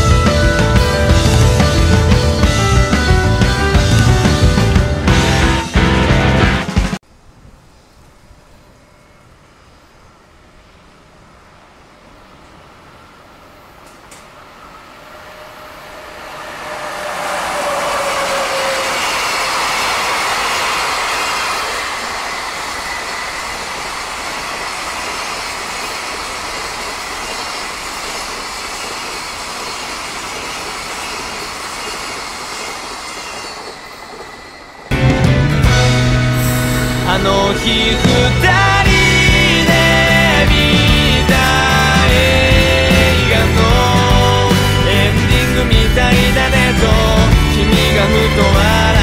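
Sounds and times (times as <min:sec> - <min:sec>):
freight train passing: 0:00.0 - 0:49.0
wheel-on-rail noise: 0:00.0 - 0:49.0
brief falling tone: 0:12.9 - 0:25.3.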